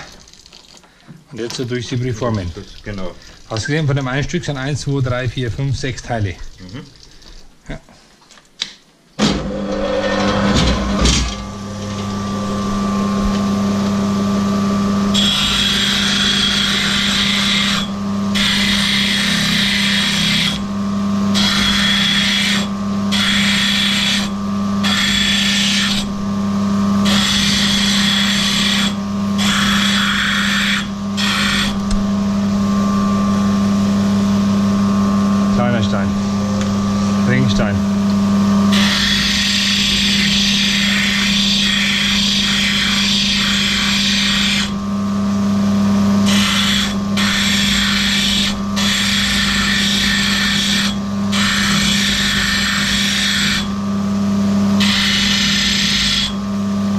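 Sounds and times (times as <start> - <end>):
grinding machine motor hum: 9.2 - 56.9
stone hissing against grinding wheel: 21.4 - 26.1, 38.7 - 44.8, 46.2 - 53.7.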